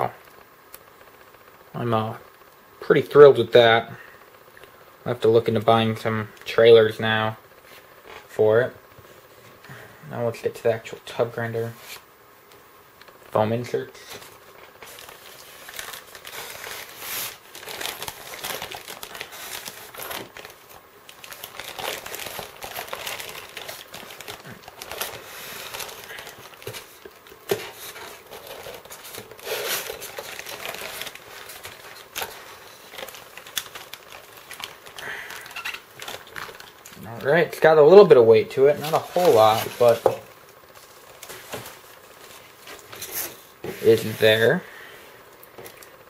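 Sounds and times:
plastic wrap crinkling: 13.0s - 46.0s.

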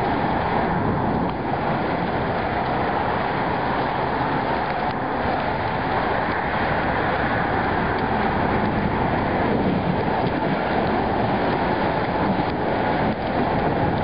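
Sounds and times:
thunderstorm rushing noise: 0.0s - 14.0s.

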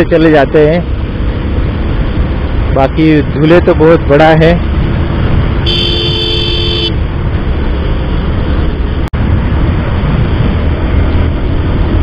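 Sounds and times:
motorcycle engine riding: 0.0s - 12.0s
motorcycle horn beep: 5.6s - 7.0s.

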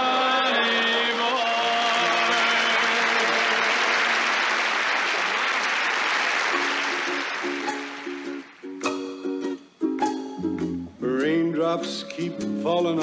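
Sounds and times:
studio audience applauding: 1.6s - 8.6s
plucked-string notes: 7.6s - 13.0s.

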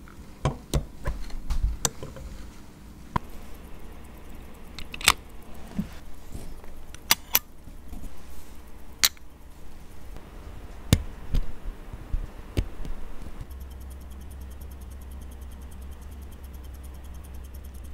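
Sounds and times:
metallic clicks and taps: 4.3s - 5.6s, 6.8s - 7.5s.

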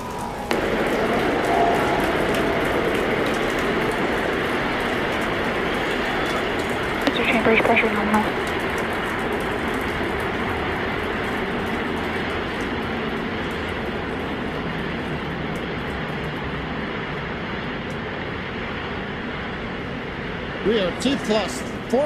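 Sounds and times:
rocket engines rumbling: 0.0s - 22.0s.

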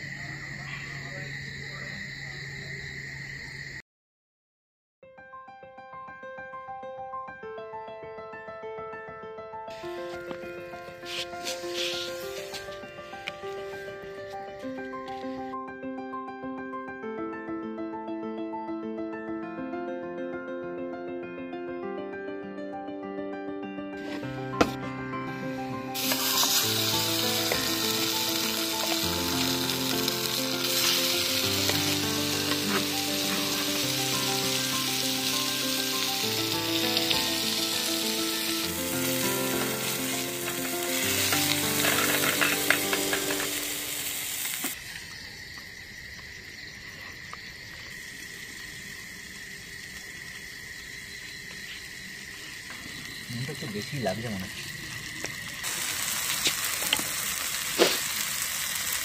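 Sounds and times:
background music: 5.2s - 44.3s
food sizzling in hot oil: 9.7s - 13.8s, 24.0s - 59.0s.

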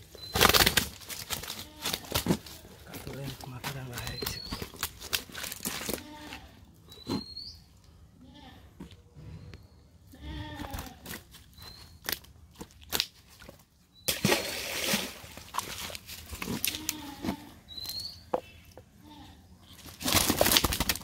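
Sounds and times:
net rustling and fish flapping: 0.2s - 6.1s, 19.8s - 21.0s.

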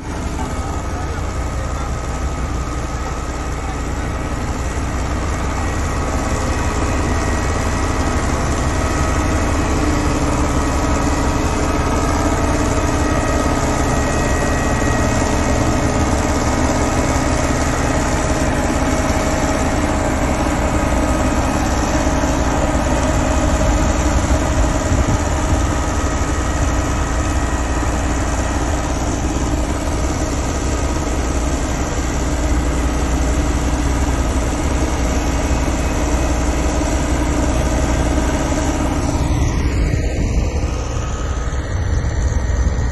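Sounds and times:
road roller diesel engine running: 0.0s - 42.9s.

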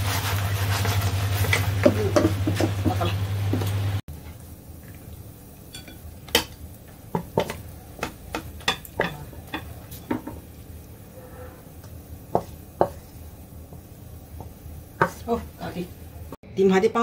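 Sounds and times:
spatula and wok knocking on plate: 1.4s - 3.7s, 7.1s - 10.4s.

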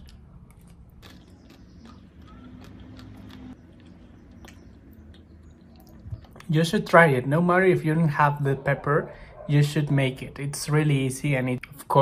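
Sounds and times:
person chewing food: 0.0s - 6.5s
wet mouth clicks: 0.0s - 6.5s.

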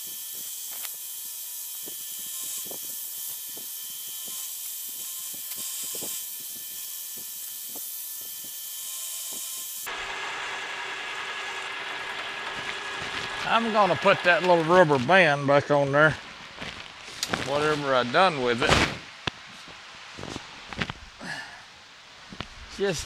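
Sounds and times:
milling machine cutting metal: 0.0s - 15.3s.

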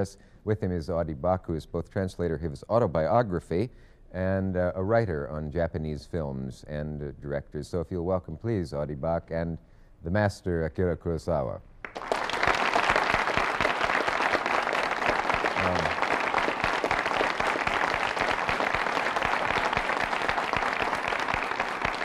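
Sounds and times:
studio audience applauding: 11.8s - 22.0s.

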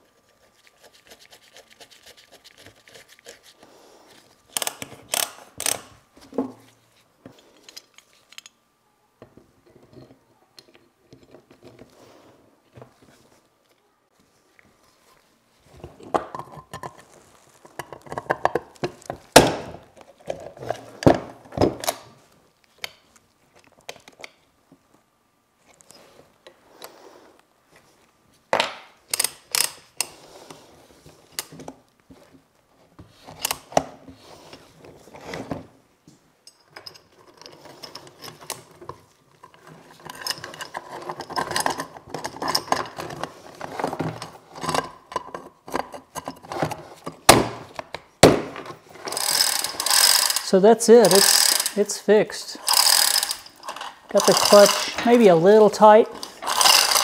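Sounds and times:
chain hoist metal clanking: 49.1s - 51.8s, 52.6s - 55.2s, 56.4s - 57.0s.

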